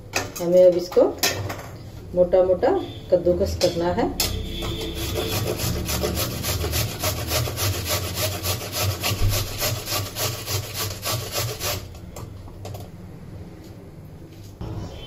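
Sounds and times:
carrot grating on metal grater: 4.5s - 12.0s.

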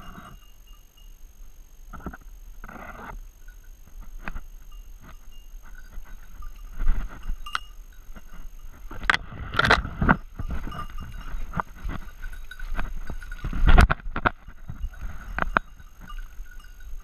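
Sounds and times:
small bell jingling: 0.0s - 1.4s, 4.6s - 9.1s, 10.0s - 17.0s.

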